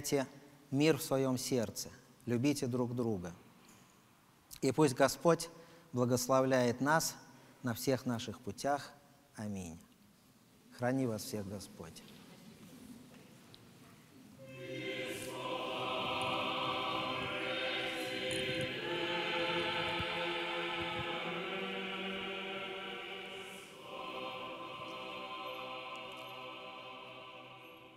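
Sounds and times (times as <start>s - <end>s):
church choir chanting: 14.4s - 27.9s.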